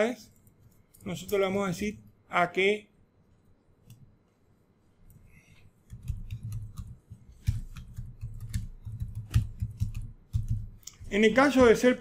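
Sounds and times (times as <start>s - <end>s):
typing on a computer keyboard: 5.9s - 11.7s.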